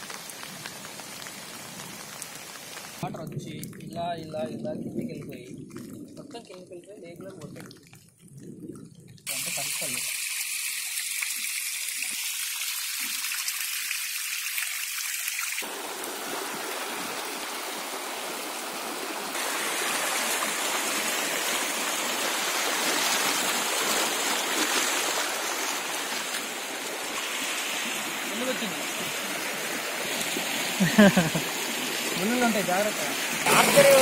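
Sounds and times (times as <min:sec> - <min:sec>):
water cascade splashing: 0:00.0 - 0:07.7, 0:09.2 - 0:34.0
stream flowing over bedrock: 0:09.2 - 0:34.0.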